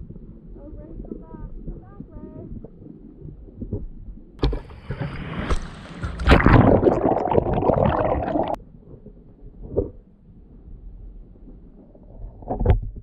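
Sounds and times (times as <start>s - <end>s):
water splashing and gurgling: 0.9s - 8.6s.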